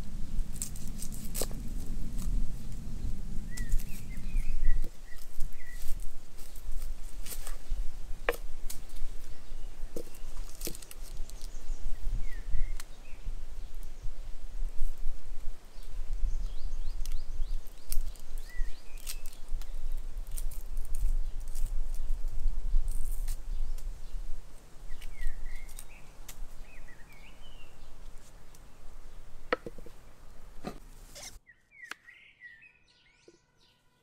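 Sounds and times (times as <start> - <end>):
steady low rumble: 0.0 - 9.9
birds chirping: 2.5 - 6.8, 7.4 - 14.1, 15.6 - 20.2, 23.5 - 34.0.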